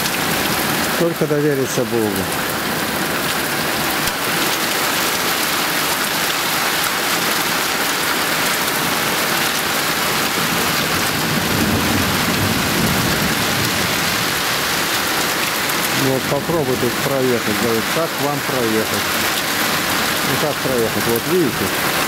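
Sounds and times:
heavy rain pouring: 0:00.0 - 0:22.0
low rumble of thunder: 0:11.0 - 0:14.4.

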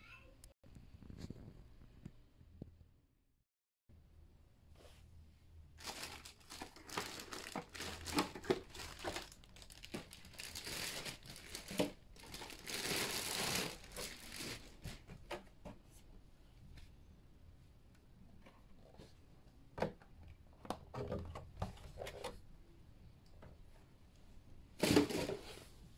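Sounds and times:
plastic bag crinkling: 0:05.8 - 0:14.8.

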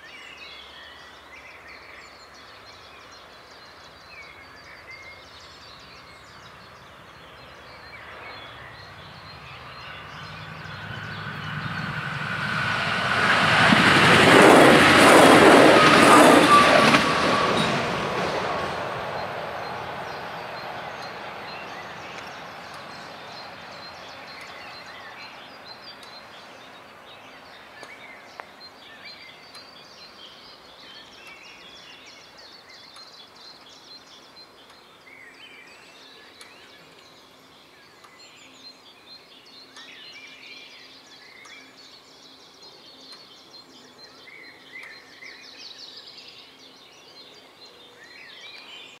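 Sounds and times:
diesel railcar rumble: 0:05.6 - 0:25.9.

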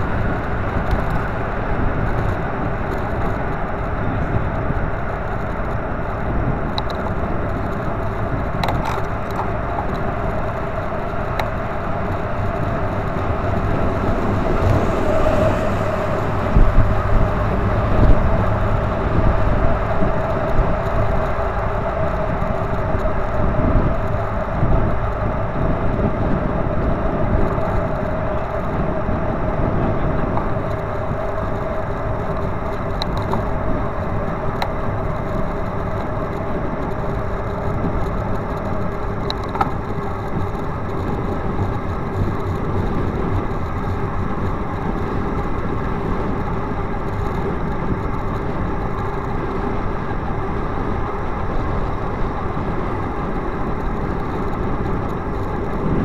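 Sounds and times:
traffic and tyre rumble: 0:00.0 - 0:56.0
faint ticks: 0:05.1 - 0:15.9, 0:30.3 - 0:50.3.

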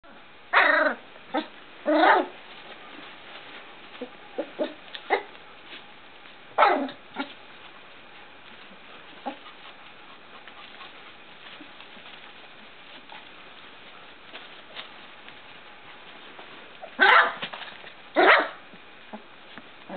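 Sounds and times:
puppies yipping and yelping: 0:08.4 - 0:13.4.

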